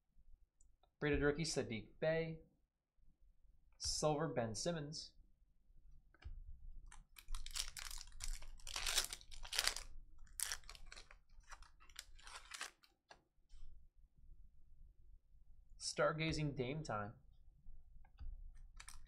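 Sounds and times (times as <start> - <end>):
foil wrapper crinkling and tearing: 6.9 - 12.9, 18.7 - 19.0.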